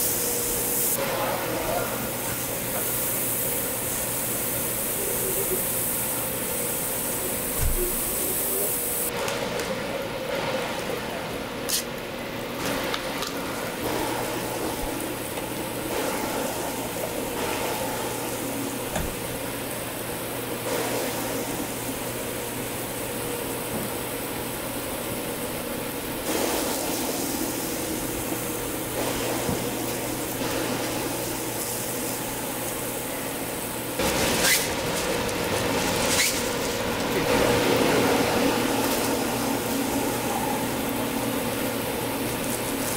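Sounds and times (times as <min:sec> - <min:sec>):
food sizzling on griddle: 0:00.0 - 0:09.1, 0:12.6 - 0:42.9
aluminium foil rustling: 0:34.0 - 0:37.3.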